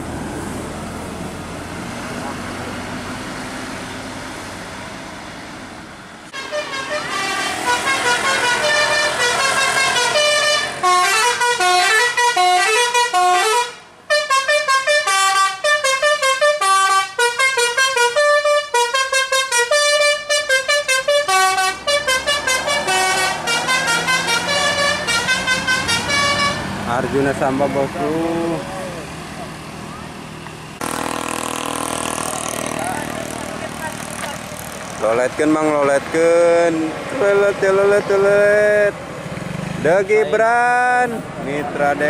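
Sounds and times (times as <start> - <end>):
road and engine noise: 0.0 - 42.0
musical air horn tune: 6.3 - 26.7.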